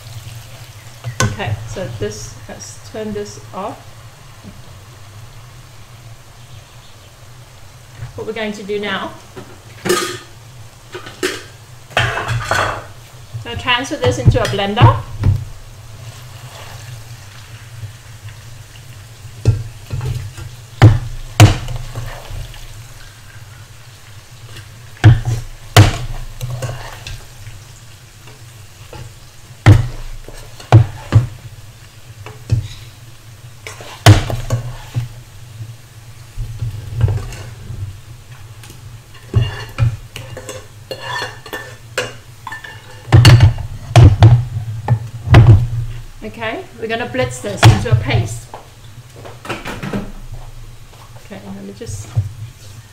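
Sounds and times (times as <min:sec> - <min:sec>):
utensils scraping a frying pan: 0:15.9 - 0:17.8, 0:19.4 - 0:23.8, 0:24.4 - 0:27.5, 0:28.2 - 0:31.4, 0:32.2 - 0:33.0, 0:33.6 - 0:35.2, 0:36.6 - 0:45.0.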